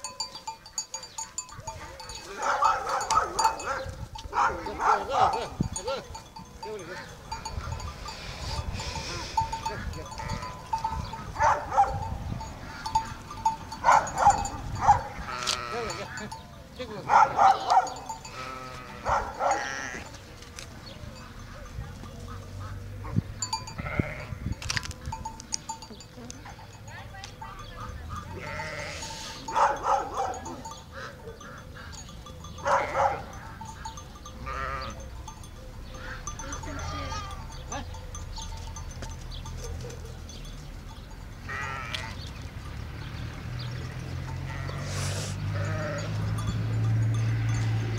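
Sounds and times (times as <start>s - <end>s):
sheep bells clinking: 0.0s - 47.9s
sheep bleating: 8.8s - 10.7s, 15.1s - 16.4s, 17.6s - 20.2s, 23.6s - 24.5s, 28.1s - 29.5s, 32.7s - 35.0s, 36.0s - 37.9s, 41.5s - 42.3s, 44.3s - 46.3s.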